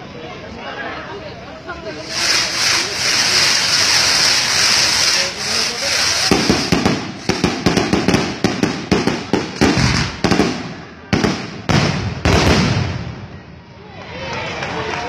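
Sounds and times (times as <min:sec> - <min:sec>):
fireworks hissing: 0:01.9 - 0:12.0
fireworks crackling pops: 0:02.0 - 0:13.1.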